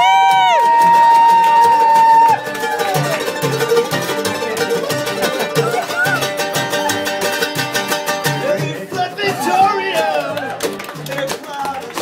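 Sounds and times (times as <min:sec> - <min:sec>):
mandolin: 0:00.1 - 0:12.0
acoustic guitar strumming: 0:00.3 - 0:12.0
upright bass plucked: 0:02.4 - 0:11.4.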